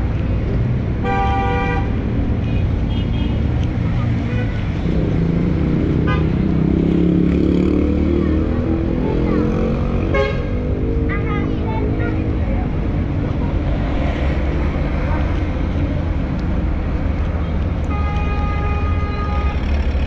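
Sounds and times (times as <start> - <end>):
street traffic noise: 0.0 - 20.0
car horn: 1.0 - 3.4, 10.1 - 10.6, 17.9 - 19.8.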